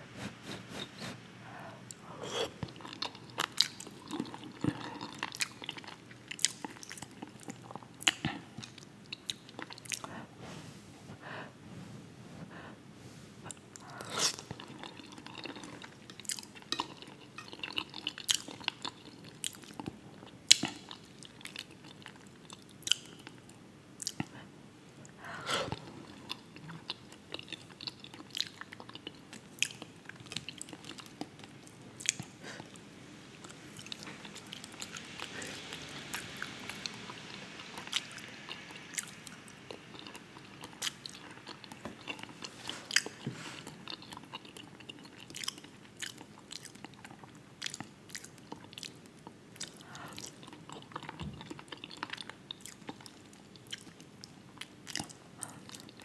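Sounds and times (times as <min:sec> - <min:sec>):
chewing and biting food: 0:02.6 - 0:10.1, 0:13.5 - 0:23.4, 0:25.7 - 0:32.8, 0:37.7 - 0:56.0.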